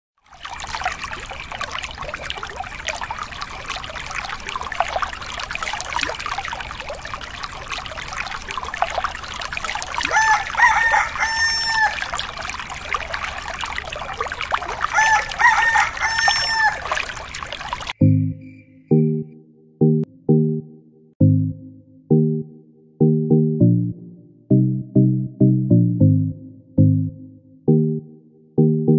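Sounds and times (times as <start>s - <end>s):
water pouring into pond: 0.2s - 18.0s
rooster crowing: 10.1s - 12.1s, 14.9s - 17.0s.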